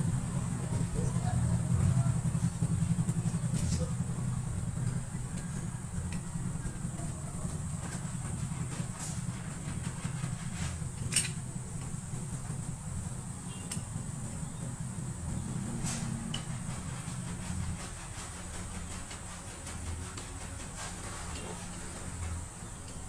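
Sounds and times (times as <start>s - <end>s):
low mechanical hum: 0.0s - 23.0s.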